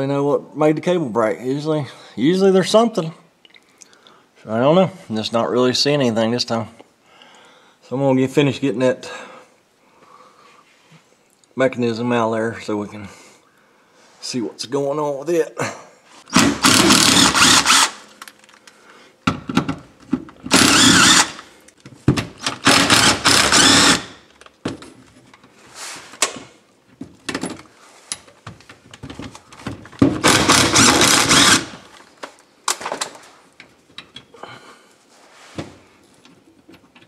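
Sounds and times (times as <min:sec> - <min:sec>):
cordless power driver spinning: 0:16.3 - 0:18.1, 0:20.5 - 0:21.4, 0:22.4 - 0:24.2, 0:30.2 - 0:31.9.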